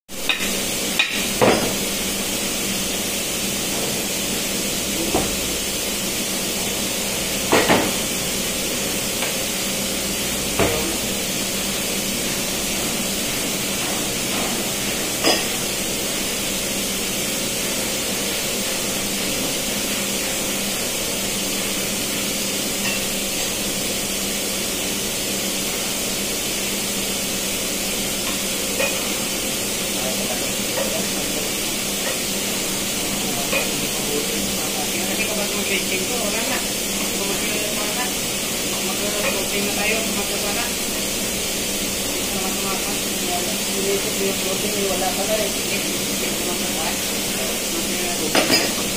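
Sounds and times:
engine room machinery hiss and hum: 0.1 - 48.9
metal knocks on steel workbench: 1.0 - 1.8.

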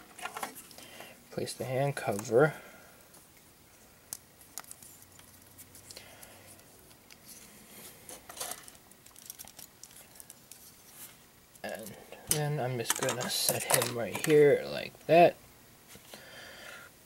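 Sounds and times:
plastic model parts clicking: 12.8 - 14.4.

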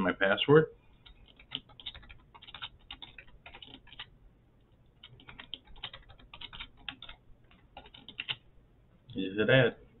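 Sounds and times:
keyboard keys clicking: 1.0 - 4.1, 5.0 - 8.4.

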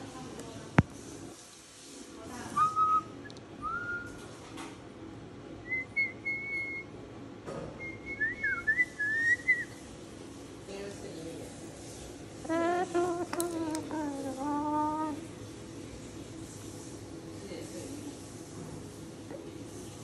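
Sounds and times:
cockatoo whistling: 2.6 - 4.2, 5.6 - 7.0, 7.8 - 9.8.

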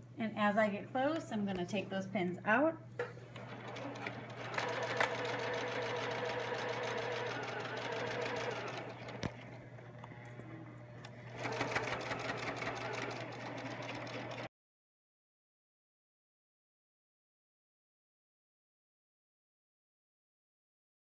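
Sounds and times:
sewing machine stitching: 3.3 - 10.2, 11.1 - 14.5.

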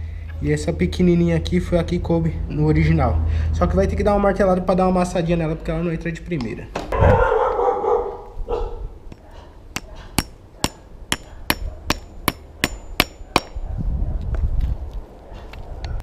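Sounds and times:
hammer striking steel washer: 9.8 - 13.6.

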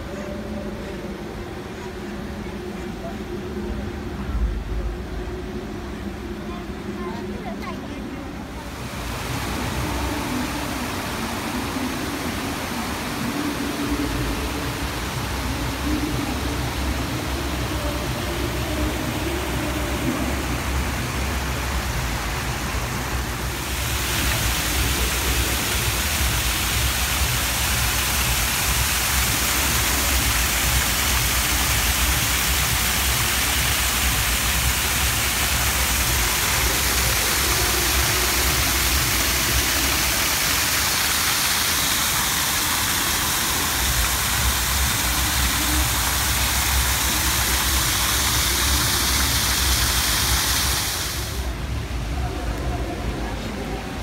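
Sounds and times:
waterfall splashing into pond: 8.7 - 51.6.

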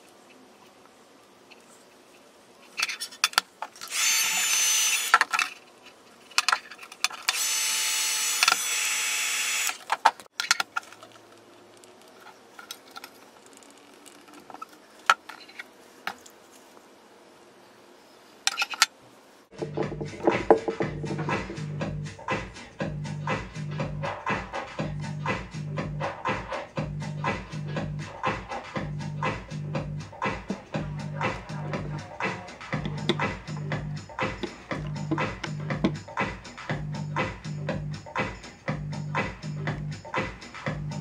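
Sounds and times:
handheld power tool whining: 3.8 - 5.4, 7.0 - 10.1.

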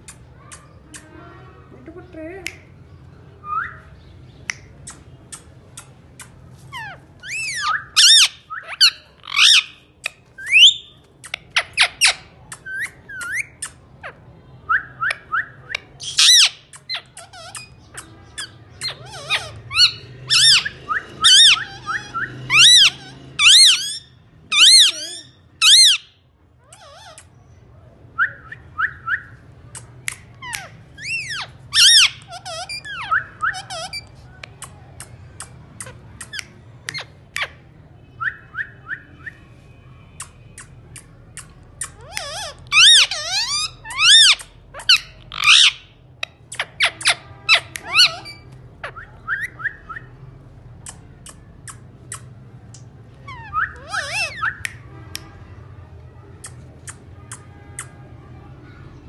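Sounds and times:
parakeets calling: 4.8 - 14.2, 15.8 - 26.1, 26.7 - 27.3, 30.2 - 34.8, 41.4 - 49.7, 53.2 - 54.8.

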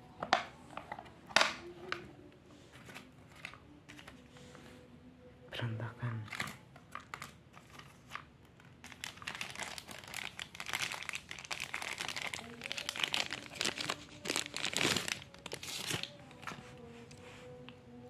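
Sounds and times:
plastic sleeve crinkling: 6.3 - 16.8.

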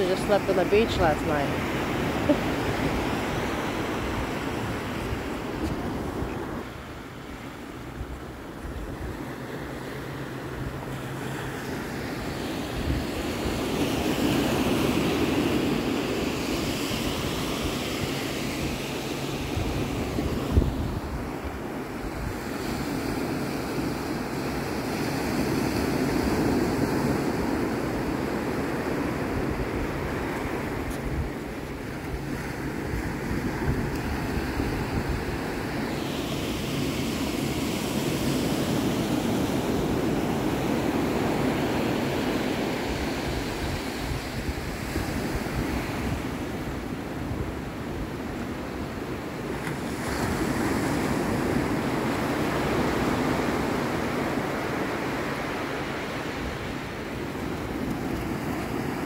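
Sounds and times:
wind on microphone: 12.3 - 49.2.

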